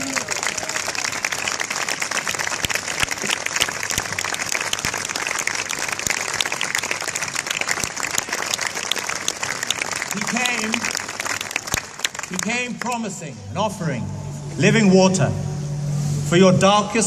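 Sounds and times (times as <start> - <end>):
crowd applauding: 0.0 - 13.2.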